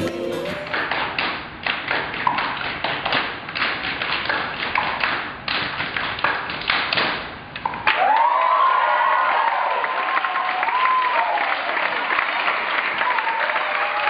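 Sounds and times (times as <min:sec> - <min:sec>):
group clapping and slapping: 0:00.0 - 0:08.8, 0:09.4 - 0:14.0.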